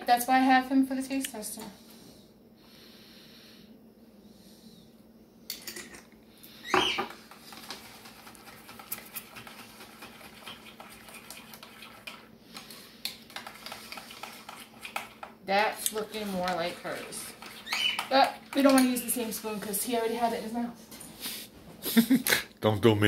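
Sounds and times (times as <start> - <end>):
spoon scraping and tapping bowl: 7.6 - 19.7.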